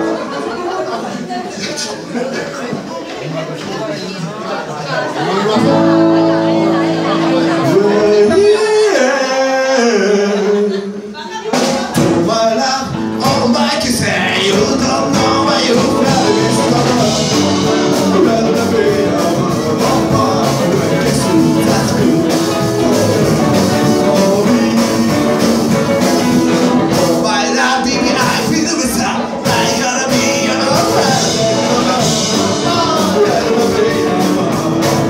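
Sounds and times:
live rock and roll band: 5.4 - 35.0
person singing: 5.5 - 35.0.

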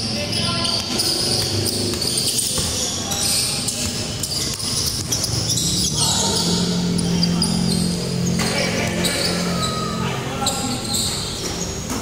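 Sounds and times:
basketball bouncing on court: 0.6 - 6.5, 10.4 - 12.0.

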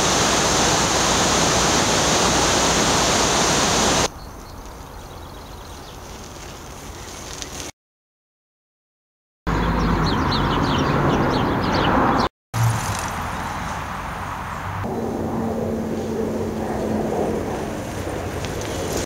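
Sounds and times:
water rushing over a weir: 0.0 - 4.1.

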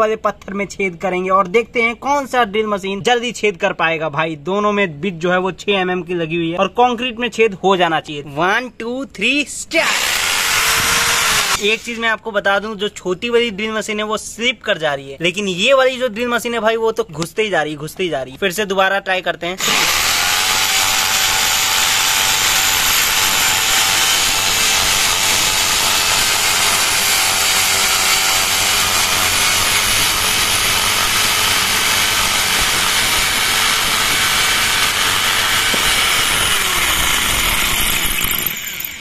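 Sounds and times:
electric drill motor whine: 9.8 - 11.9, 19.6 - 39.0
drill bits grinding stone: 9.8 - 12.0, 19.6 - 39.0.

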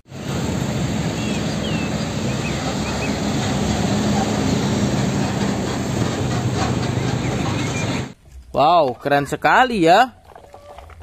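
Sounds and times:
diesel truck engine humming: 0.0 - 8.2
road and traffic noise: 0.0 - 8.2.

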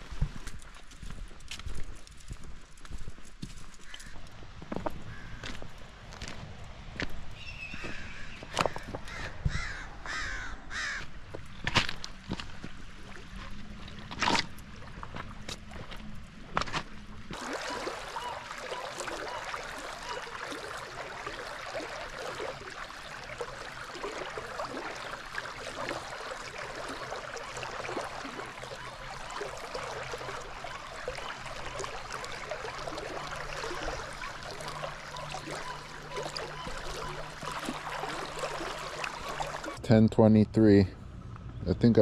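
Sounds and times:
river water running over rocks: 10.7 - 39.8.

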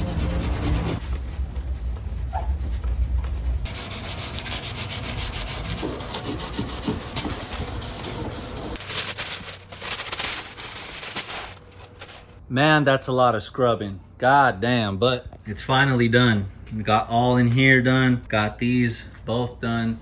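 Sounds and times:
masking paper rustling: 0.0 - 12.4
abrasive pad scrubbing sheet metal: 3.6 - 12.2.

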